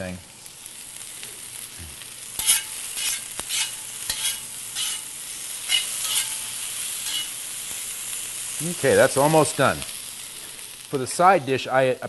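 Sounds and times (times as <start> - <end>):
vegetables sizzling in a pan: 0.0 - 12.0
metal spatula scraping: 2.4 - 7.5.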